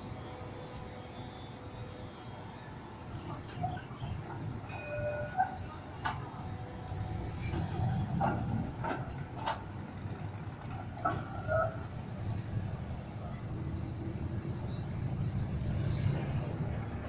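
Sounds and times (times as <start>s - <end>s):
trams rumbling over tracks: 0.0s - 17.0s
wheels clicking over rail joints: 3.2s - 12.8s.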